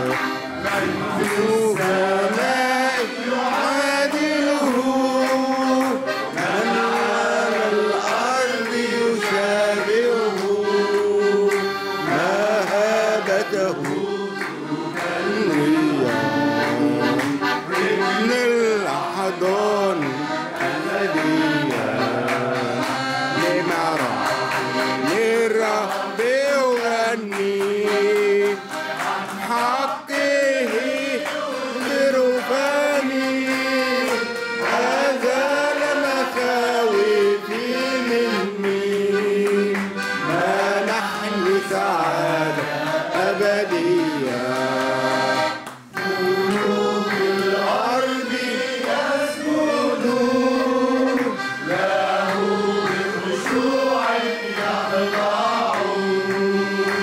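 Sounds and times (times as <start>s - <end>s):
accordion: 0.0s - 57.0s
solo voice singing a hymn: 0.0s - 57.0s.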